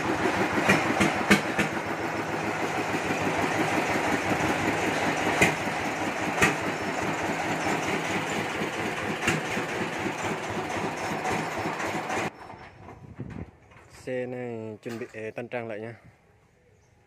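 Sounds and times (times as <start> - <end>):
engine running: 0.0 - 13.0.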